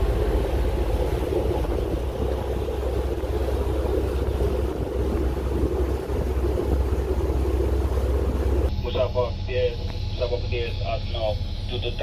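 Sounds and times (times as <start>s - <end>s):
wind on microphone: 0.0s - 8.7s
boat engine running: 0.0s - 12.0s.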